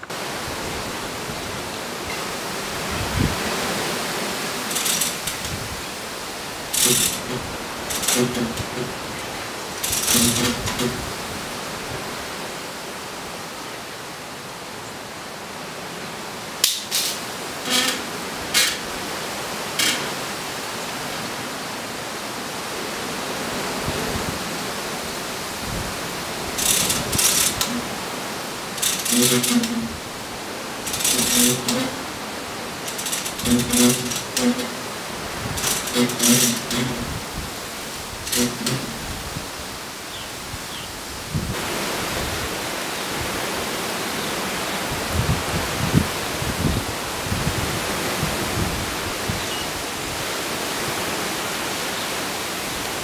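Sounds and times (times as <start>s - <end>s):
steady hiss: 0.0s - 53.0s
wind on microphone: 0.3s - 12.2s, 25.4s - 28.1s, 33.2s - 42.6s, 44.8s - 50.3s
lifting gear rattling: 4.6s - 5.9s, 6.5s - 11.1s, 26.6s - 28.0s, 28.7s - 30.1s, 30.8s - 37.2s, 38.2s - 39.2s.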